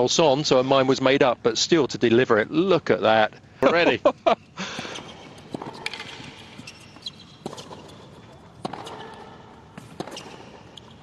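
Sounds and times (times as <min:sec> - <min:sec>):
tennis racquet hits: 0:04.8 - 0:11.0
tennis ball bounces: 0:05.0 - 0:11.0.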